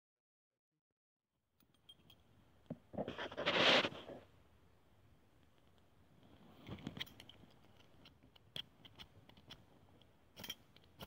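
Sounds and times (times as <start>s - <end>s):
metal camp gear clicking: 6.8s - 11.0s.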